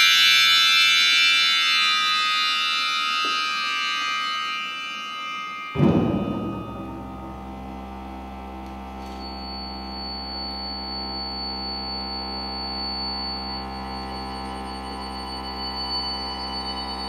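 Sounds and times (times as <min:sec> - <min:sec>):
thin high tone: 0:02.2 - 0:08.2
accordion and electronic drone: 0:04.0 - 0:09.6
low hum: 0:05.8 - 0:10.0.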